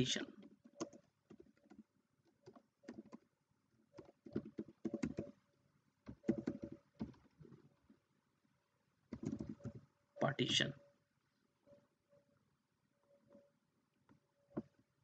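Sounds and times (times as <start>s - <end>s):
keyboard typing: 0.2s - 3.3s, 3.9s - 5.4s, 6.0s - 7.4s, 9.1s - 10.4s.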